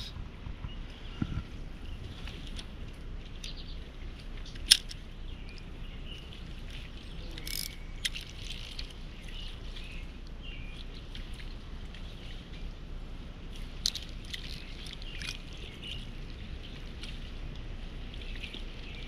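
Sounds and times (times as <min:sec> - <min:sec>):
outdoor background noise: 0:00.0 - 0:19.0
fishing reel click: 0:07.4 - 0:08.8.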